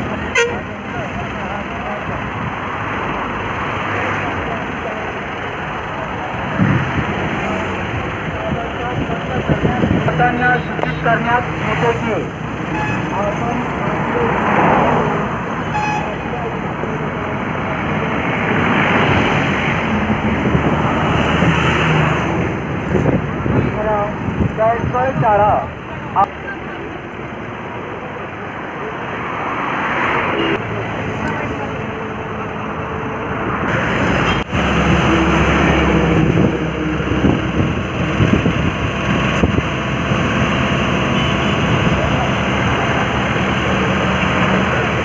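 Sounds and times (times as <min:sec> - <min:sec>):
heavy diesel truck engine under load: 0:00.0 - 0:45.0
wind noise on microphone: 0:06.4 - 0:10.3, 0:18.2 - 0:25.7, 0:34.5 - 0:42.1.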